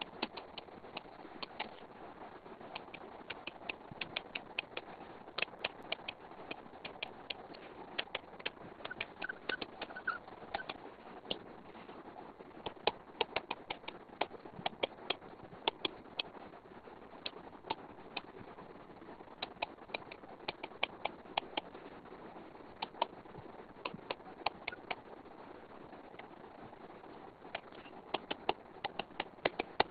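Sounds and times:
steady background hiss: 0.0 - 29.9.

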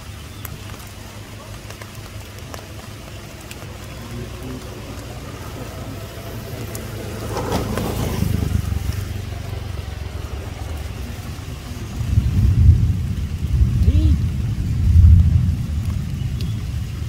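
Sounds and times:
motorbike engine passing by: 3.9 - 13.1.

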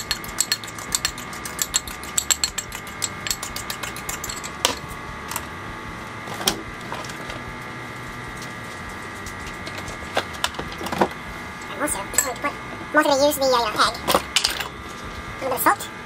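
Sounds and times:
metal spoon scraping ceramic bowl: 0.0 - 4.6
faint steady hum: 0.0 - 16.0.

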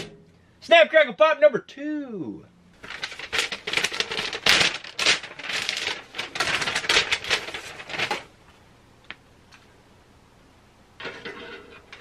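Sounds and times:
plastic packaging crinkling: 2.8 - 8.3.

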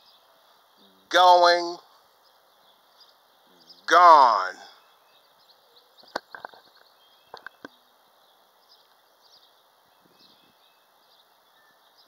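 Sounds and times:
faint high chirps: 4.7 - 12.0.

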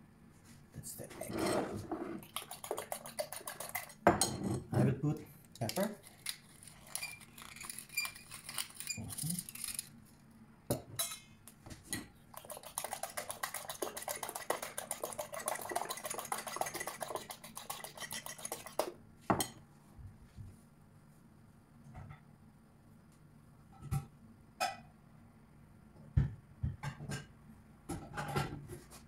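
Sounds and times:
pepper mill grinding: 2.2 - 4.0, 5.4 - 10.0, 12.3 - 18.9
fork beating eggs in ceramic bowl: 2.2 - 4.4, 5.5 - 9.9, 11.8 - 19.6.

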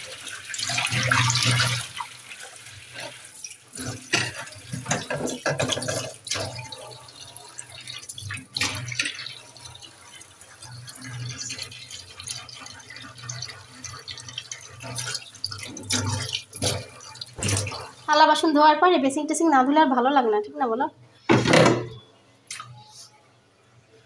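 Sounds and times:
water splashing and dripping: 0.0 - 18.1.

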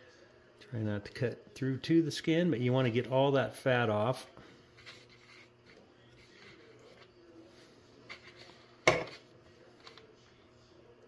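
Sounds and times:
faint steady hum: 0.0 - 11.0
knife scraping on cutting board: 4.8 - 7.1.

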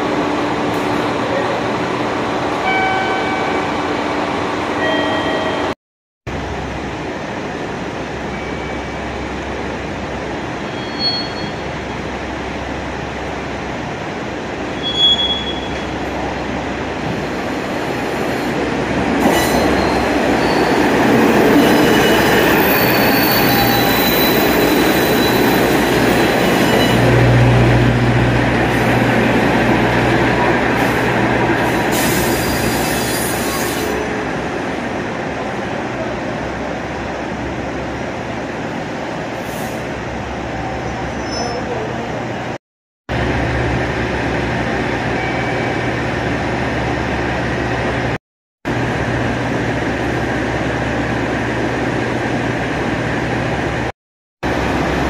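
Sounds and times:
diesel railcar engine and wheels: 0.0 - 55.0
high wheel squeals: 10.6 - 11.8, 14.7 - 16.0, 19.2 - 20.9, 21.5 - 27.1.

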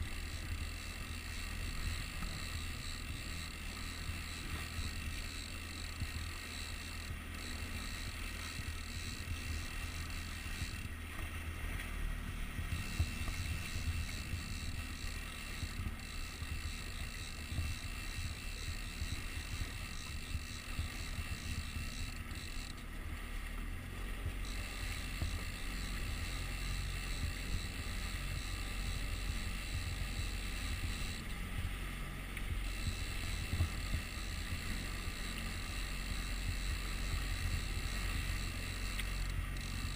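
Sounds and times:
outboard motor droning: 0.0 - 39.9
water rushing past hull: 0.0 - 39.9
wind on microphone: 7.1 - 22.4, 24.0 - 39.9.

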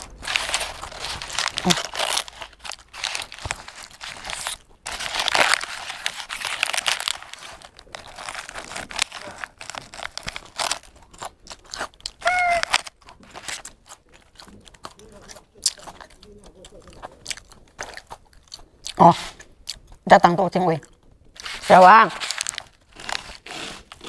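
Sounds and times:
paper bag crinkling: 0.0 - 13.8, 21.4 - 24.0
crunchy bites and chewing: 0.0 - 20.1, 20.8 - 24.0.

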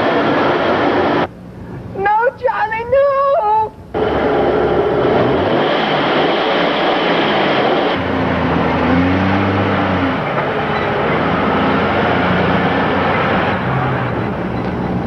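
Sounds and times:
loud rushing noise: 0.0 - 1.3, 3.9 - 15.0
car engine driving off: 3.9 - 15.0.

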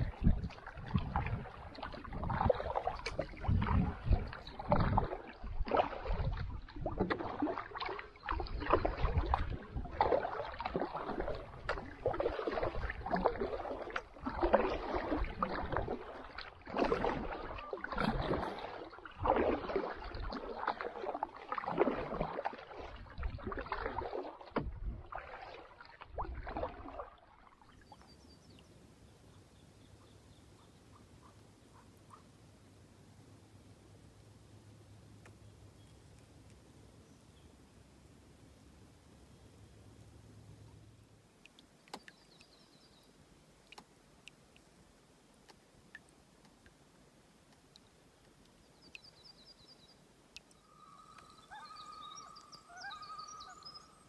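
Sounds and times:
paddle strokes in water: 0.0 - 28.6.

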